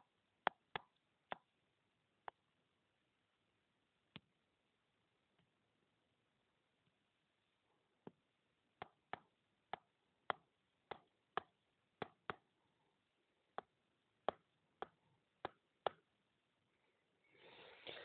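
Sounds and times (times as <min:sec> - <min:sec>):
stylus tapping on screen: 0:00.4 - 0:01.6, 0:02.2 - 0:02.5, 0:08.0 - 0:12.6, 0:13.5 - 0:16.2.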